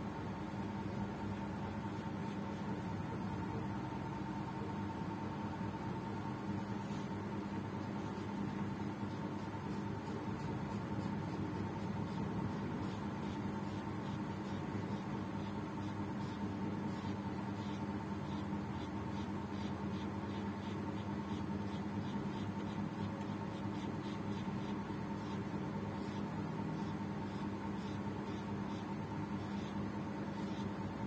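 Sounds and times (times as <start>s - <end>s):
steady background hum: 0.0s - 31.0s.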